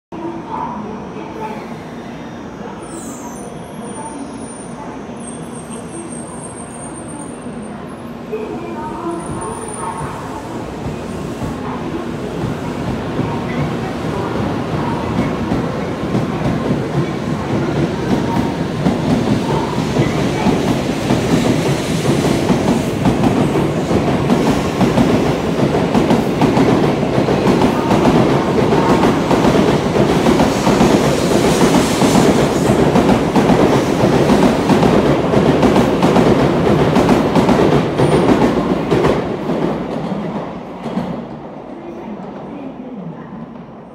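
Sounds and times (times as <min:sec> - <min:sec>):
train wheels rumbling and clattering: 0:09.1 - 0:41.5.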